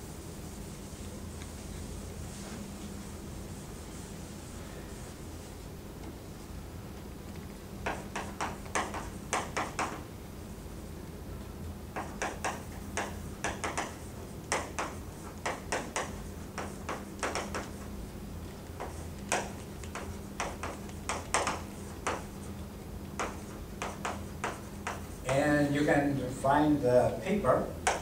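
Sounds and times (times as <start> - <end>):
chalk tapping and scratching: 0.7 - 5.4, 7.8 - 10.1, 11.9 - 25.8.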